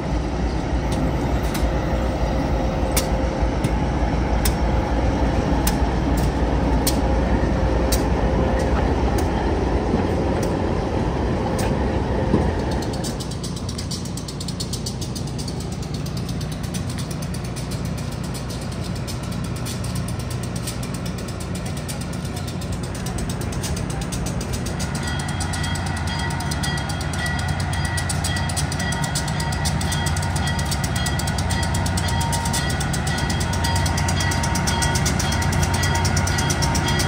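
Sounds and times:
diesel locomotive engine rumbling: 0.0s - 37.0s.

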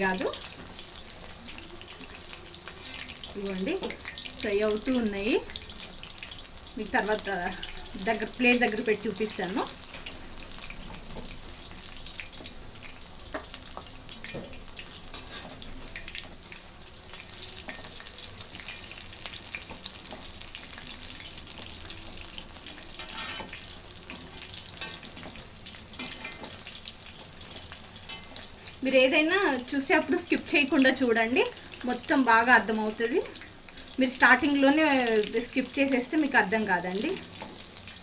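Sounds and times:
frying in hot oil sizzling: 0.0s - 38.0s.

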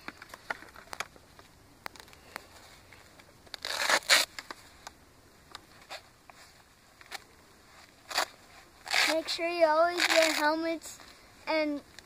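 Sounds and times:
scraping rustle: 5.7s - 11.2s.

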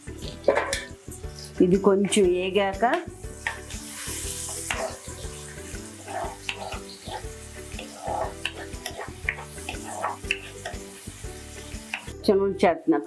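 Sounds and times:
onions sizzling in hot oil: 0.0s - 13.0s
spatula scraping a pan: 0.2s - 2.2s, 3.4s - 11.0s.

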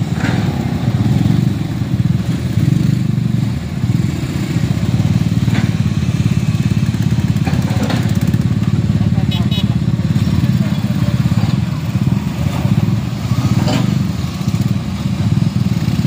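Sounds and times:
small motorcycle engines puttering: 0.0s - 16.0s.

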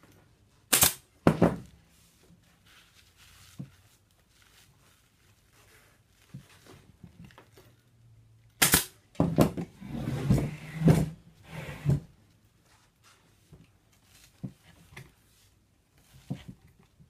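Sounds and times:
pneumatic staple gun firing: 0.7s - 1.0s, 8.6s - 9.0s
chair being shifted: 9.4s - 12.2s.

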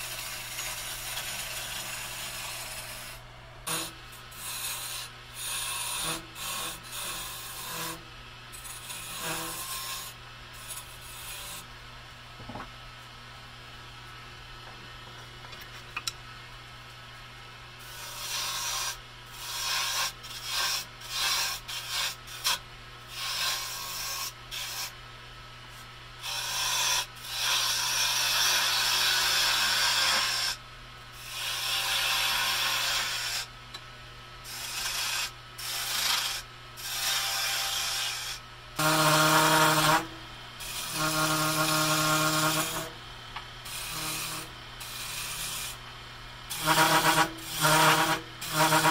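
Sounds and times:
tool scraping spinning wood: 0.0s - 8.0s, 38.8s - 43.0s, 46.5s - 48.9s.

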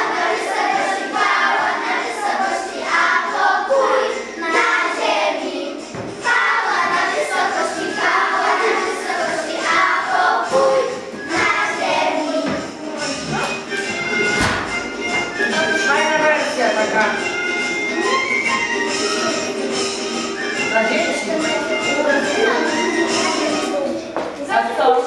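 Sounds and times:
children singing a carol: 0.0s - 14.3s, 21.2s - 24.1s.

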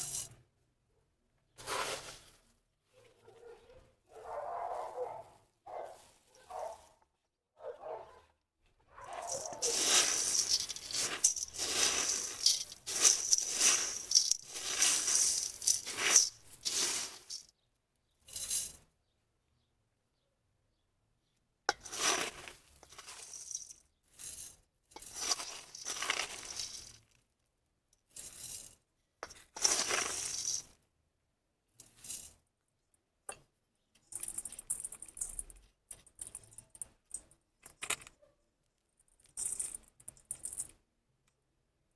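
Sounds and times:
gritty soil scraping in metal bowl: 0.0s - 0.4s, 1.6s - 2.5s, 9.0s - 17.5s, 21.7s - 27.0s, 28.1s - 30.8s
grit falling on metal: 9.1s - 17.5s, 21.7s - 27.2s, 28.1s - 30.8s.

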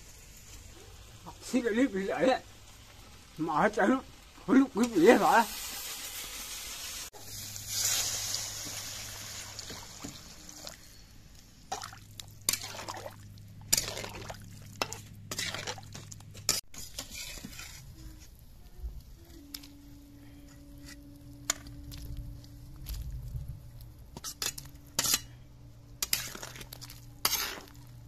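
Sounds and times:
steady hiss: 0.0s - 11.7s
thick gravy bubbling in a wok: 5.1s - 20.2s, 25.9s - 28.0s
metal spatula stirring: 11.7s - 18.4s, 20.4s - 22.1s, 24.1s - 25.4s, 26.0s - 28.0s.

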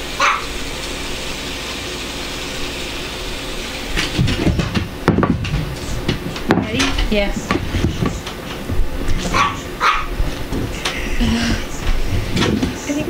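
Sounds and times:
handling noises: 3.9s - 13.0s.

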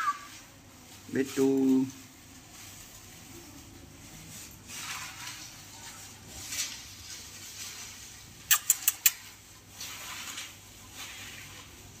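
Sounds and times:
quick sharp clicks: 8.5s - 9.3s.

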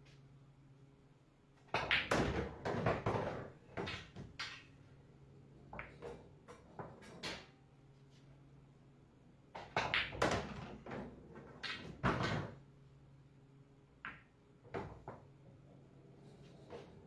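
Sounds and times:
pool balls knocking: 1.7s - 4.7s, 5.7s - 7.5s, 9.6s - 12.6s, 14.0s - 15.6s.

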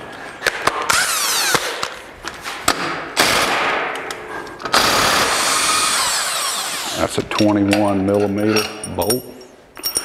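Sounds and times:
impact wrench running: 4.7s - 7.1s.

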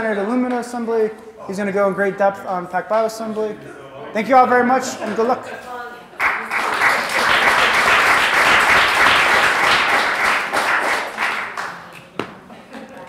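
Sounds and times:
audience applauding: 6.2s - 12.1s.

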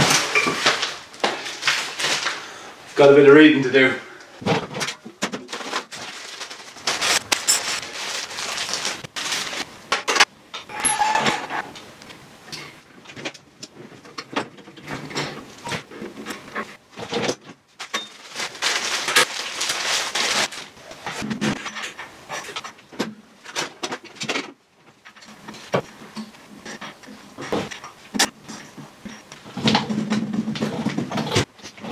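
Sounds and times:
plastic bags crinkling: 0.0s - 3.1s, 5.4s - 10.2s, 17.7s - 21.3s.

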